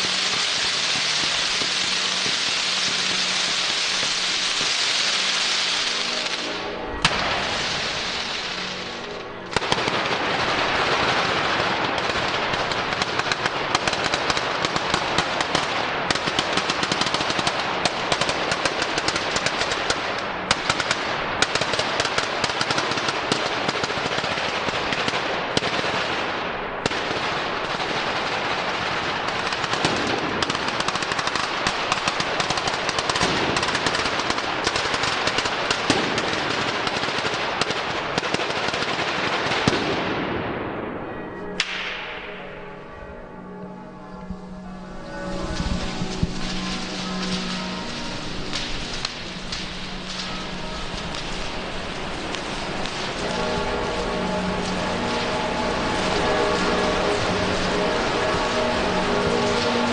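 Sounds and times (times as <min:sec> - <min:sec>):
hiss: 0:00.0 - 0:06.6, 0:45.5 - 0:59.9
firecrackers crackling: 0:00.0 - 0:59.9.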